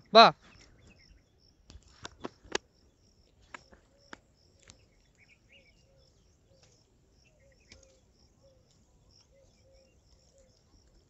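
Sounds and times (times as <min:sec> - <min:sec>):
insects chirping: 0:00.0 - 0:11.0
short bird calls: 0:03.5 - 0:10.7.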